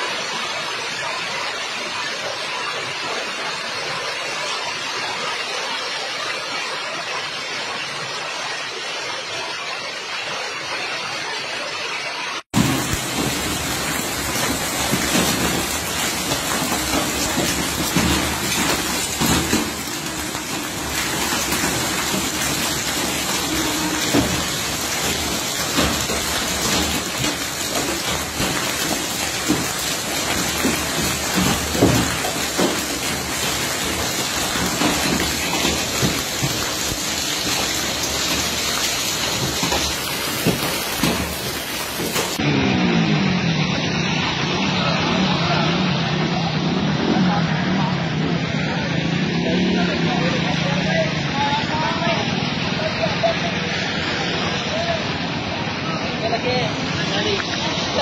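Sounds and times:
hailstones pelting the ground: 12.6 - 42.4.

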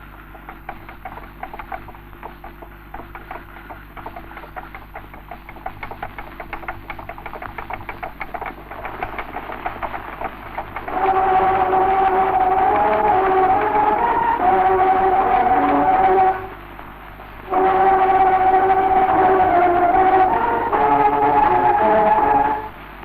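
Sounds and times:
horse hooves clattering on pavement: 0.0 - 16.4
optical soundtrack hum: 0.0 - 23.0.

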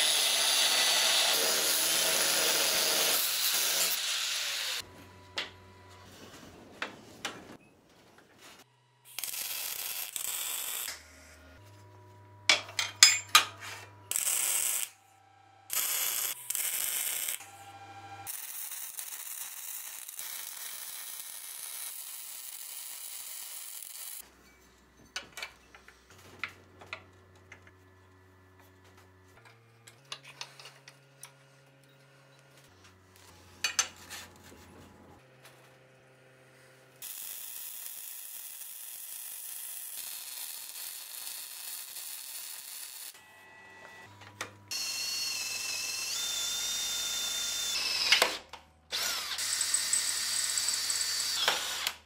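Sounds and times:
welding hiss and crackle: 9.1 - 11.0, 14.1 - 15.0, 15.7 - 17.4, 18.3 - 24.2, 37.0 - 43.2.

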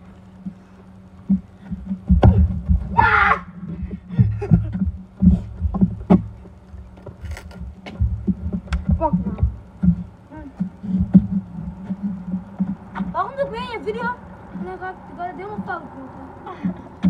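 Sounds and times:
low rumble: 1.0 - 17.0
football kicked thumps: 1.7 - 3.0.

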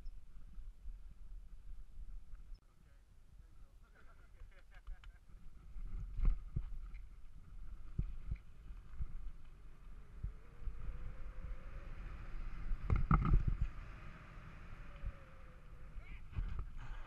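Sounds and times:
wind on microphone: 5.2 - 17.0
bike tyres rushing on dirt: 5.4 - 17.0
low thumps from bumps: 12.7 - 13.8.

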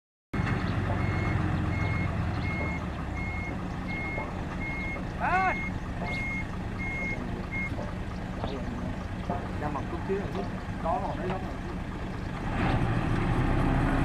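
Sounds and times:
reversing alarm beeping: 0.4 - 9.7
diesel engine running: 0.4 - 14.0.

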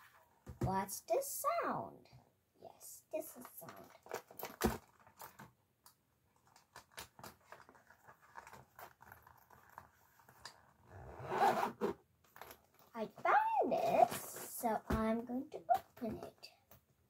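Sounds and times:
fabric pencil case rustling: 7.2 - 12.9.

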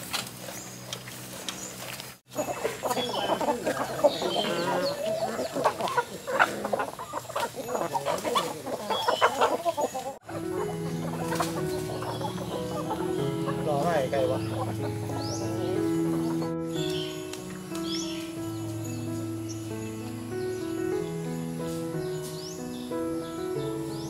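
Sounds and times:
chickens clucking: 0.4 - 18.7
music with held notes: 10.2 - 24.0.

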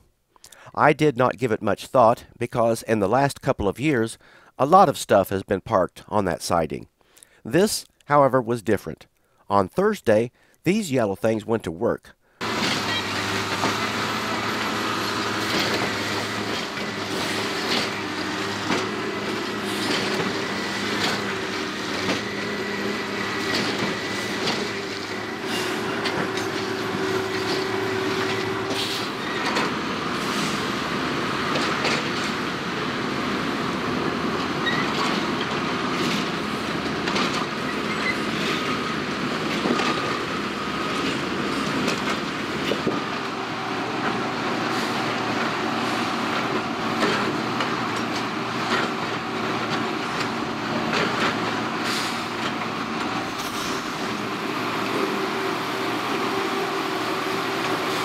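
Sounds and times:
diesel engines and hydraulics running: 12.3 - 58.0.

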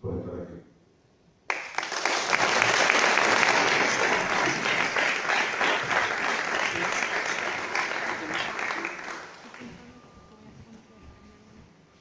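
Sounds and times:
audience applauding: 1.5 - 10.0.

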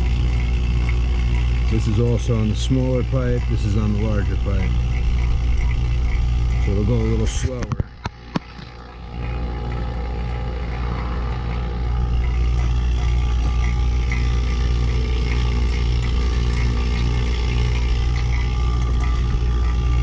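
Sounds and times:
vacuum pump humming: 0.0 - 20.0.

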